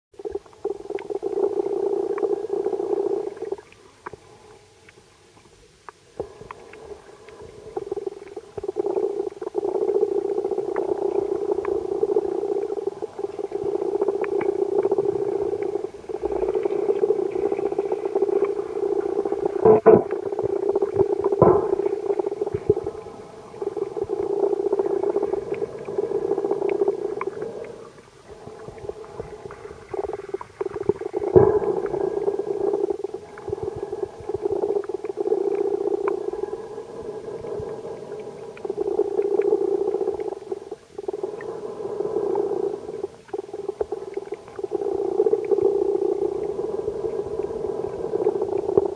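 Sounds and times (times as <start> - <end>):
faint clicks: 0.2 - 48.9
muffled underwater hum: 0.2 - 48.9.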